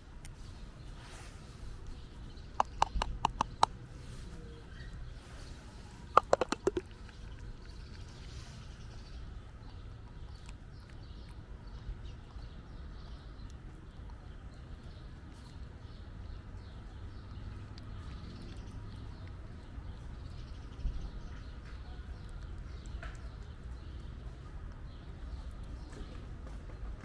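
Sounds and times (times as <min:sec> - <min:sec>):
cat chewing wet food: 0:06.2 - 0:15.6.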